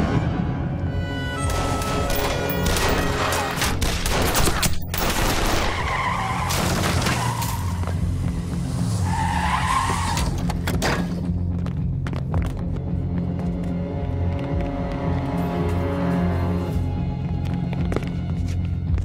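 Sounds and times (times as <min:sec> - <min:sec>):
tyres skidding: 0:05.5 - 0:19.0.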